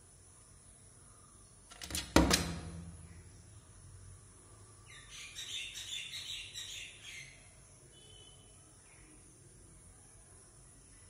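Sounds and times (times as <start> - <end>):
woodpecker tapping on window glass: 1.7 - 3.2.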